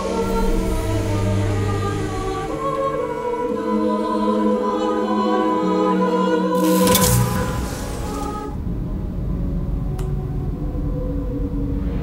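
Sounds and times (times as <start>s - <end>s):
choir holding long chords: 0.0s - 6.8s.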